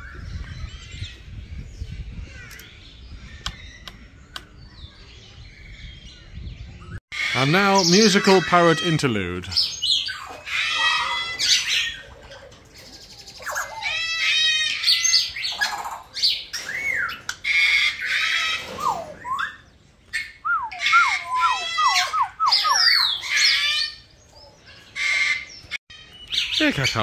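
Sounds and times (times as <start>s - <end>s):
parrots calling harshly: 7.1s - 12.2s, 13.4s - 27.0s.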